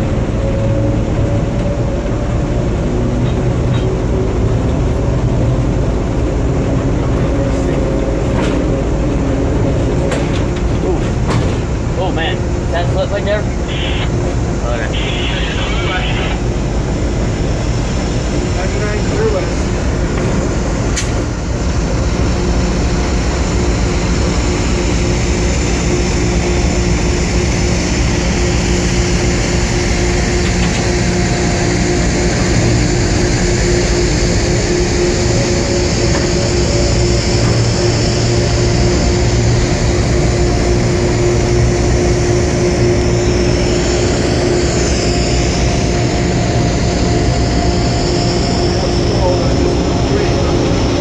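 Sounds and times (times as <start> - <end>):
diesel locomotive engine rumble: 0.0 - 51.0.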